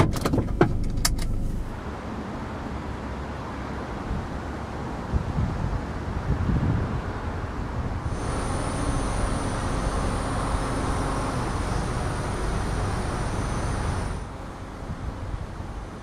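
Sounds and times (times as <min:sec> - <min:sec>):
car road and engine rumble: 0:00.0 - 0:16.0
hiss with high whine: 0:08.1 - 0:14.3.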